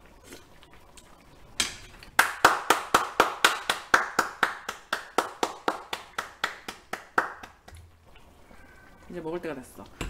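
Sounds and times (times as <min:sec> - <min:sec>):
person clapping hands: 0:02.2 - 0:07.8.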